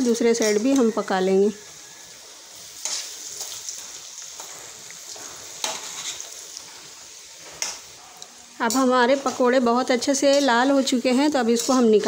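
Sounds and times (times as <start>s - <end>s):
food deep-frying in hot oil: 0.0s - 12.0s
slotted spoon stirring: 2.8s - 6.9s, 8.6s - 12.0s.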